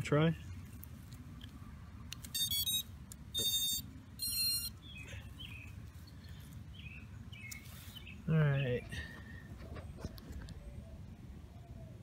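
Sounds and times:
short high-pitched electronic beeps: 2.4 - 4.8.

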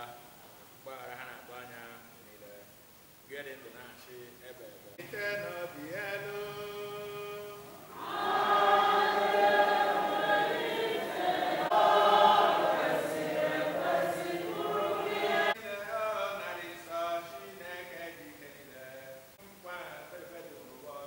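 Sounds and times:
congregation singing: 5.0 - 17.3.

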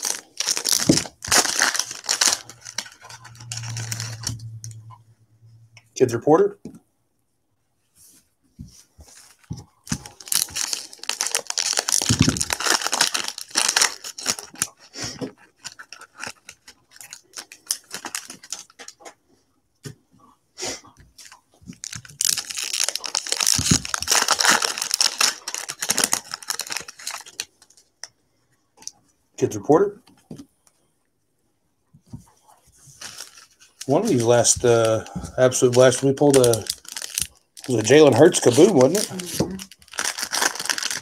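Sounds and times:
foil wrappers tearing and crinkling: 0.0 - 4.4, 9.9 - 19.0, 21.8 - 27.9, 33.0 - 41.0.

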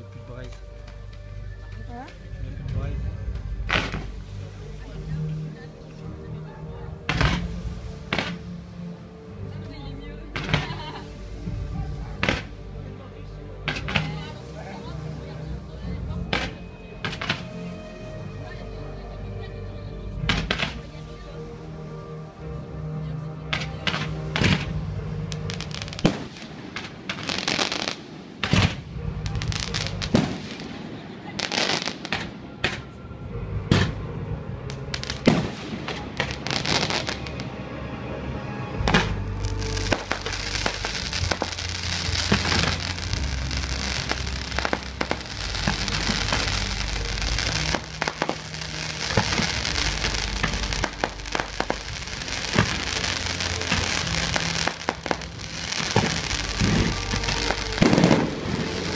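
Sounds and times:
fireworks crackling: 0.0 - 22.4, 23.1 - 37.7, 38.6 - 58.9
low rumble: 0.0 - 27.4, 28.0 - 58.9
fireworks bangs and pops: 0.4 - 4.3, 7.1 - 8.4, 10.4 - 12.6, 13.6 - 14.4, 16.3 - 17.6, 20.2 - 21.0, 23.5 - 32.9, 38.8 - 58.9.

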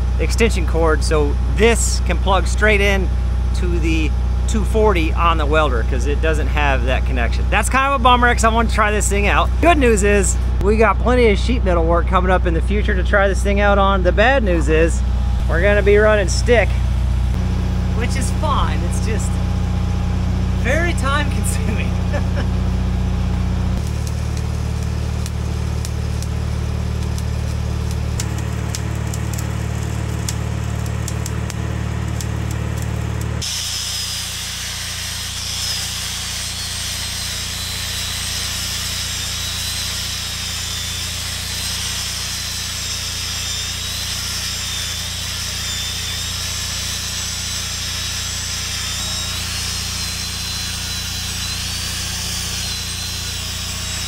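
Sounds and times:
engine running: 0.0 - 54.0
welding arc crackling: 14.9 - 54.0.

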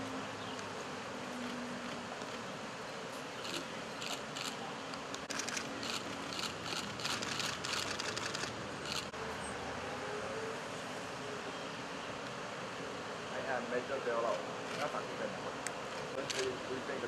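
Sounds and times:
steady background hiss: 0.0 - 17.0
camera shutters clicking: 5.2 - 9.1, 16.0 - 16.6.

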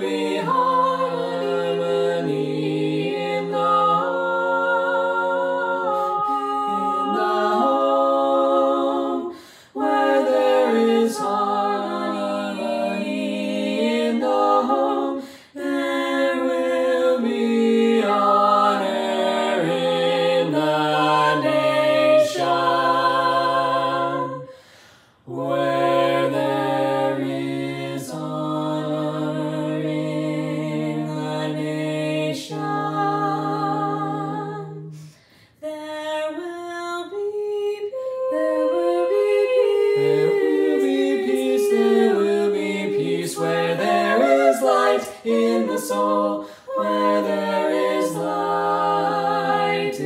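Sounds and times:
a cappella choir singing: 0.0 - 50.0.

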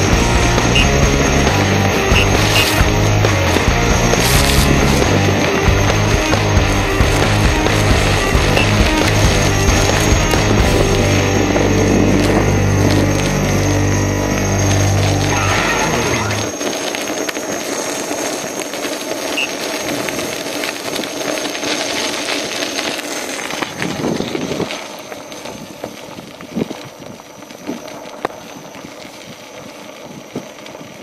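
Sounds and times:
tyre rolling on gravel: 0.0 - 31.0
wind over microphone: 23.6 - 31.0.

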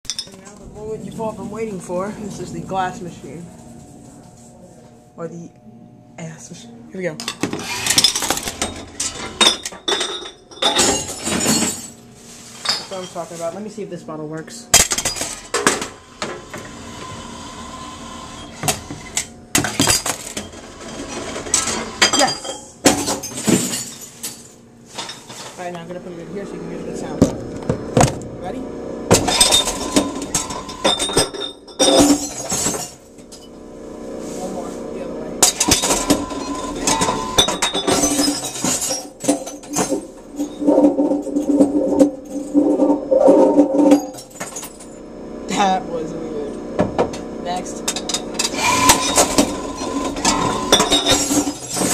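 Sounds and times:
glass bottle clinking and rattling: 0.1 - 0.4, 7.3 - 12.0, 29.2 - 33.5, 35.4 - 44.9, 47.9 - 51.9
machine motor hum and whine: 0.3 - 12.2, 15.4 - 22.0, 25.6 - 38.4, 39.1 - 51.9
glass bottle clinking: 47.9 - 51.9.

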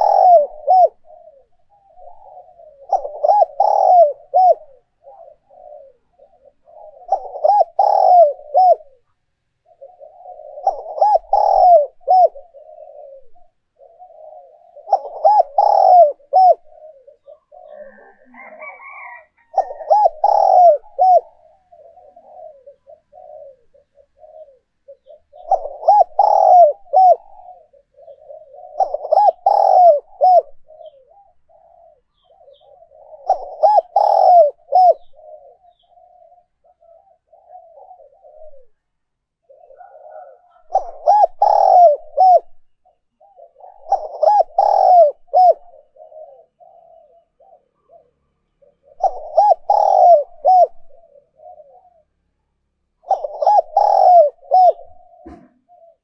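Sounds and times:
dove cooing: 0.0 - 56.0.

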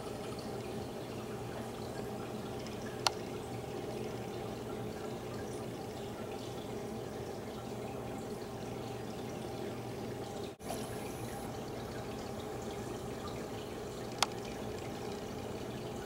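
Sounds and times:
steady background hum and hiss: 0.0 - 16.0
sharp click: 14.2 - 14.9.

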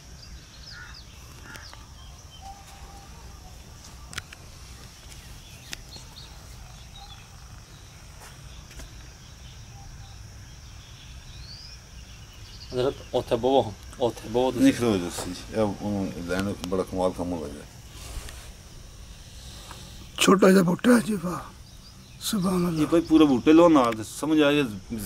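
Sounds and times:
bird chirps: 0.0 - 17.4
high insect drone: 0.0 - 25.0.

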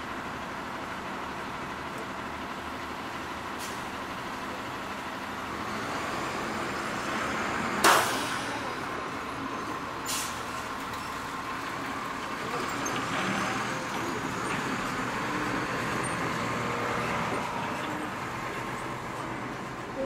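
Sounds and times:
street traffic hum: 0.0 - 20.0
short hiss: 10.1 - 10.4.

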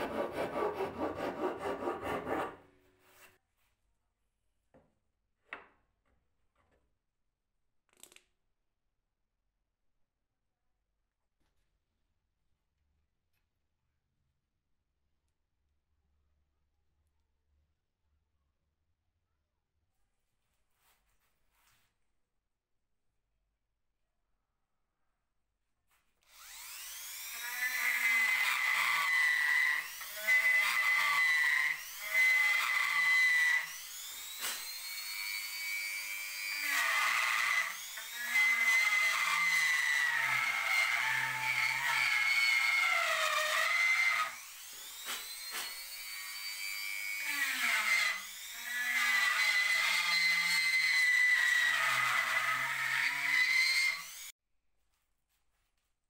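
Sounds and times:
rotary tool grinding wood: 0.0 - 2.6, 26.3 - 54.3.

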